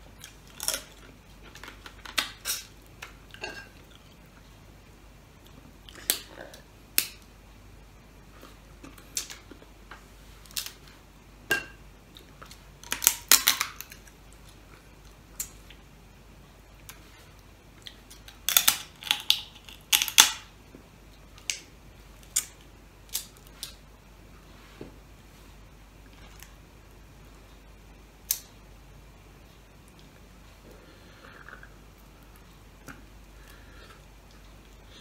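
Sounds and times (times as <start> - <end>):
crab shells cracking by hand: 12.8 - 14.1, 18.2 - 20.4.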